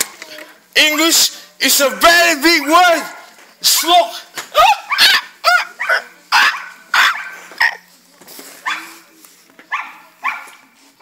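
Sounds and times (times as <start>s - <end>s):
dog barking: 4.7s - 7.8s, 8.6s - 9.0s, 9.7s - 10.6s.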